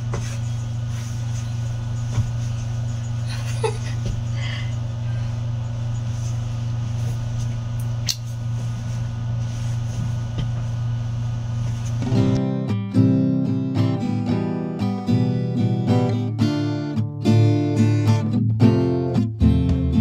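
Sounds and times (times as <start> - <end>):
steady low hum: 0.0 - 12.5
sharp click: 7.8 - 8.3.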